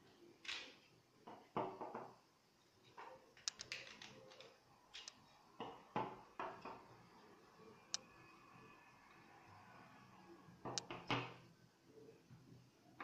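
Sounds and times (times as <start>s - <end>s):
plastic pieces clicking on wooden table: 3.4s - 5.1s.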